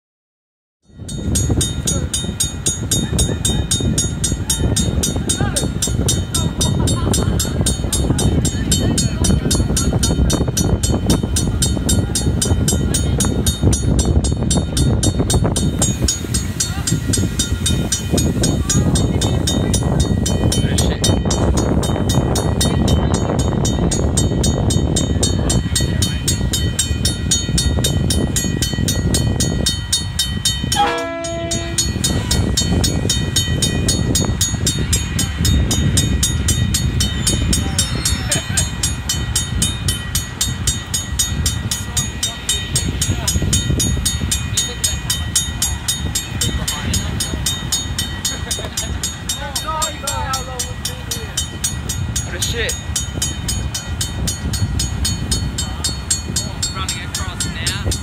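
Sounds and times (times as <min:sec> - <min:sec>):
crossing warning bells ringing: 0:00.8 - 0:58.0
diesel locomotive engine running: 0:01.0 - 0:58.0
train horn note: 0:30.7 - 0:32.1.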